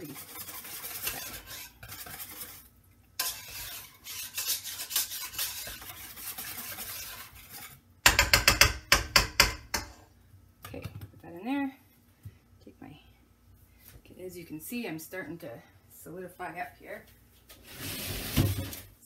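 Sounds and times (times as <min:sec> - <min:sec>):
whisk scraping metal pot: 0:00.0 - 0:10.0.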